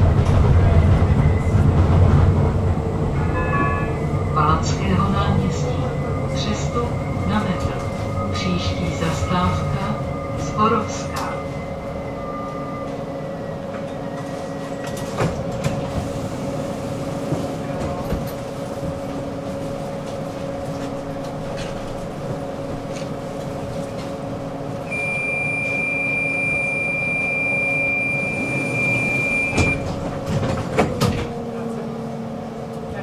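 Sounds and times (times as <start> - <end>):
tram rumble and electrical hum: 0.0 - 33.0
steady high beep: 24.9 - 29.8.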